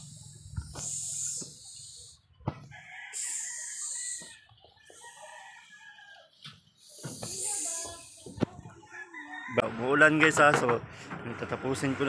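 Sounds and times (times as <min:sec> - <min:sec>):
rooster crowing: 0:02.6 - 0:06.4, 0:08.8 - 0:10.1.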